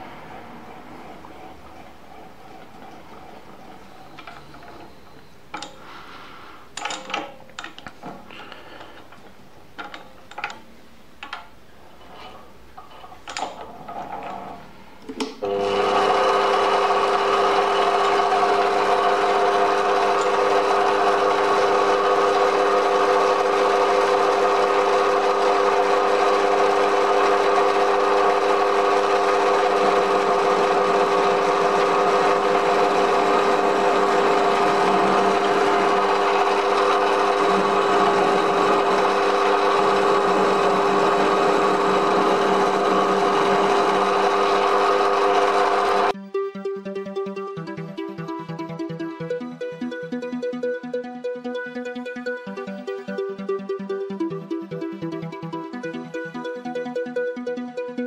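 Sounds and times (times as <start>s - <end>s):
metal lathe running: 0.0s - 5.9s, 15.4s - 46.1s.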